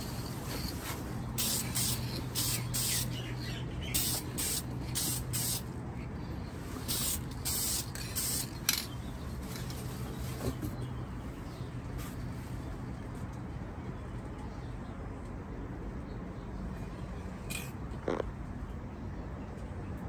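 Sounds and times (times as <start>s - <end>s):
aerosol spray can hissing: 1.4s - 3.1s, 4.0s - 5.6s, 6.9s - 8.5s.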